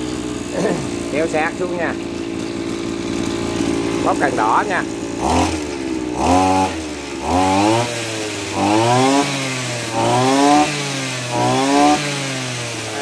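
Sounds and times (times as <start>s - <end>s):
brushcutter engine revving: 0.0s - 13.0s.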